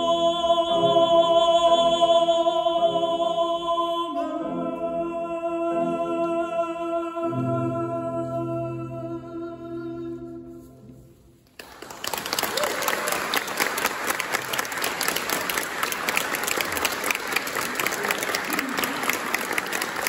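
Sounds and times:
man singing with piano: 0.0 - 10.8
audience applause: 11.6 - 20.0.

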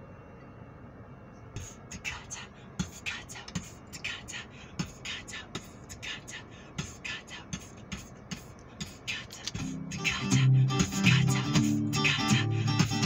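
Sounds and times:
beatboxing: 1.6 - 13.0
guitar: 9.5 - 13.0.

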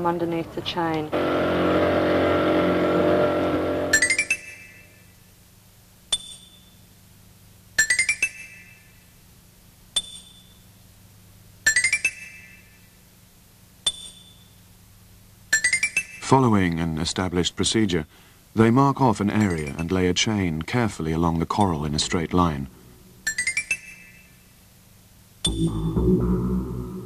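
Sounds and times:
small boat motor running: 1.1 - 4.2.

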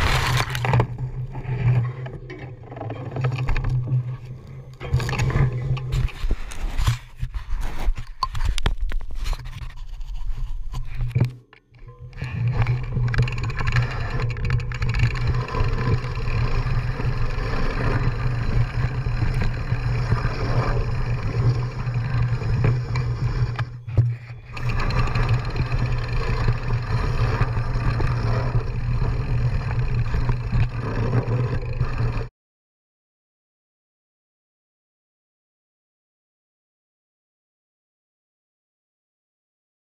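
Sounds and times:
tyres on dirt: 0.0 - 3.8
bike rattling over bumps: 0.0 - 7.2, 11.8 - 32.3
wind rumble on microphone: 12.0 - 32.3.

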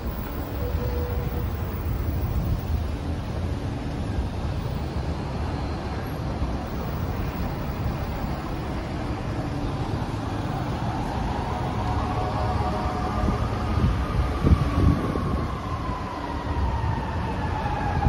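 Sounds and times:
city traffic rumble: 0.0 - 18.0.

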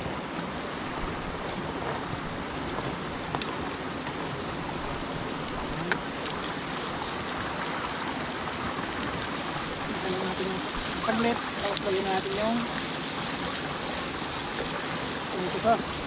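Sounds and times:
vegetables sizzling in oil: 4.5 - 16.0.

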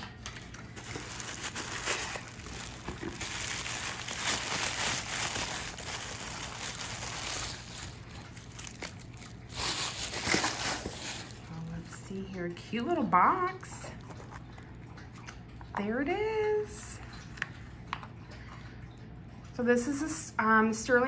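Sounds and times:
handling noise: 0.0 - 11.5
tissue paper rustling: 0.7 - 11.5.

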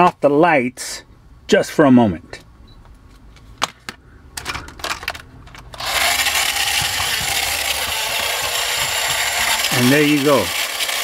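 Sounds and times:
toy truck motor whirring: 5.7 - 11.0.

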